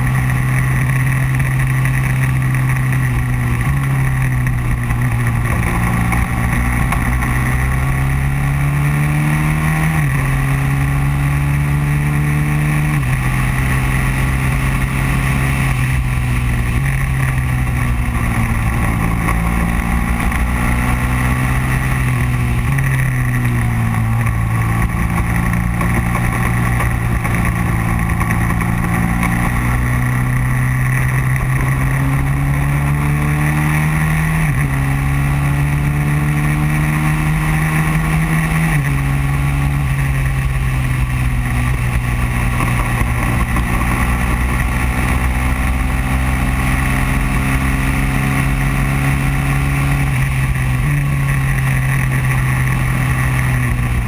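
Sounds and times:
racing kart engine: 0.0s - 54.0s.

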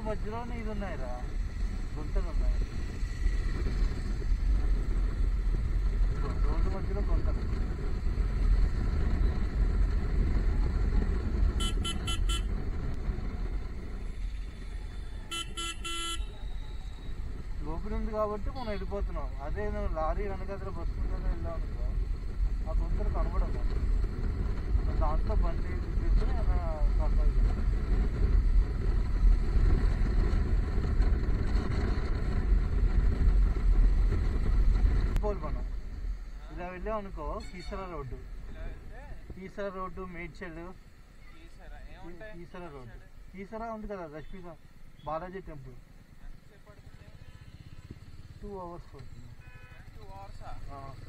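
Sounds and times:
motorcycle engine rumble: 0.0s - 51.0s
vehicle horn beeps: 11.6s - 12.5s, 15.3s - 17.1s, 49.4s - 49.9s.

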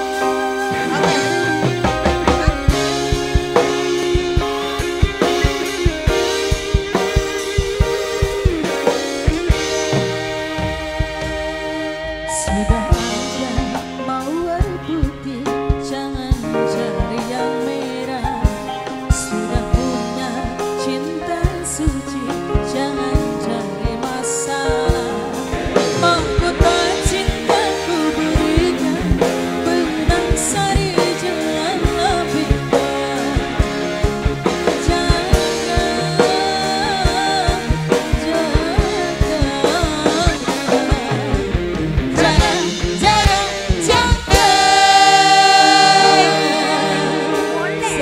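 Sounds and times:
live band playing: 0.0s - 48.0s
woman singing into a microphone: 12.3s - 34.0s, 34.6s - 41.5s, 42.2s - 48.0s.

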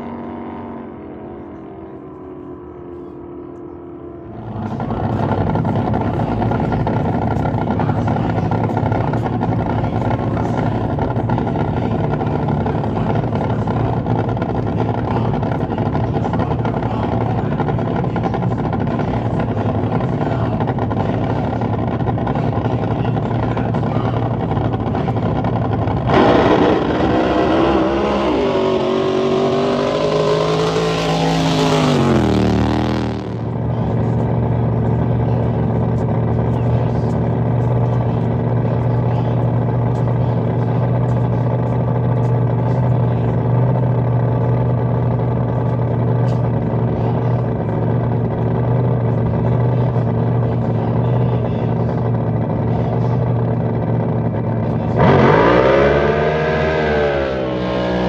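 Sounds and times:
loud engine pitch sliding down: 0.0s - 21.0s, 24.4s - 36.4s, 54.6s - 58.0s
boat engines droning: 0.0s - 58.0s.

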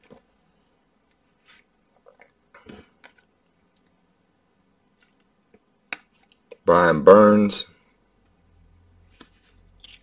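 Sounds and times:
cards flipped clicking and rustling: 9.1s - 10.0s.

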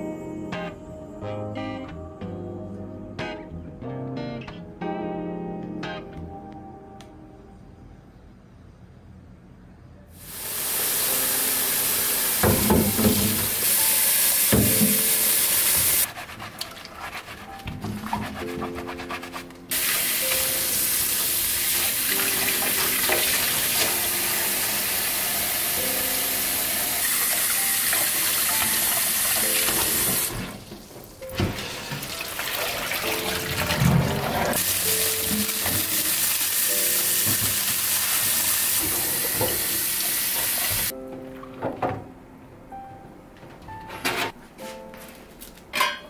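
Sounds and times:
tap water splashing into sink: 37.2s - 39.6s.

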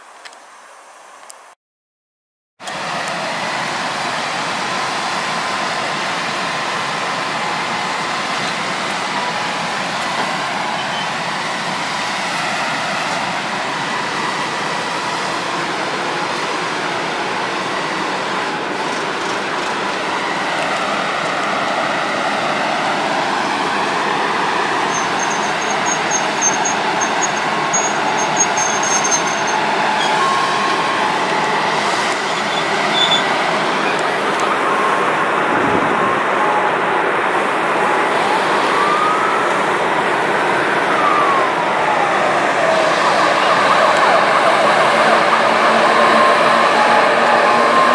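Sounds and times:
locomotive running noise: 2.6s - 47.9s
rising and falling tone: 37.8s - 47.9s.

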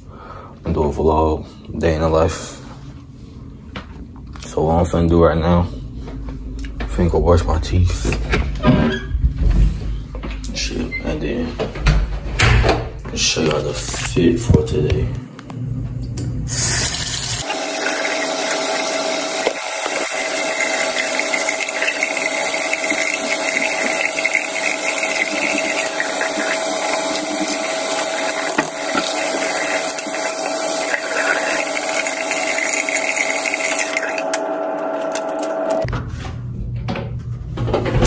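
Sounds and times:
tap running into sink: 17.4s - 34.0s.

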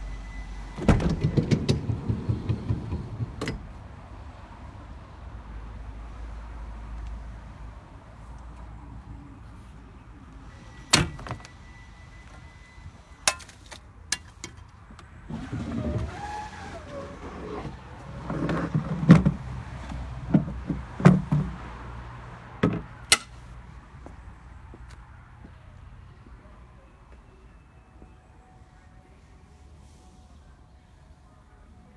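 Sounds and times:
metal ramp clacks and clunks: 0.8s - 3.8s
metal ramp scraping slide: 15.3s - 19.4s.

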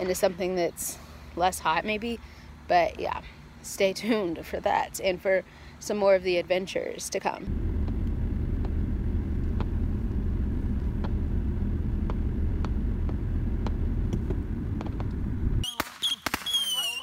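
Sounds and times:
car rumble from inside cabin: 7.5s - 15.6s
distant fireworks popping: 7.5s - 17.0s.

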